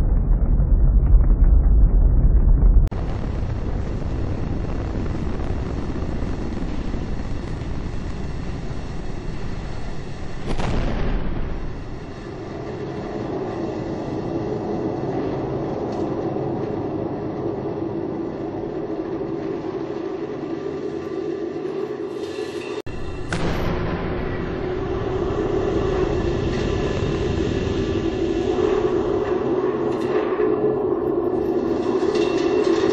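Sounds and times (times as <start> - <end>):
steady hum: 0.0 - 22.0
rocket engines rumbling: 0.0 - 22.1, 22.8 - 32.9.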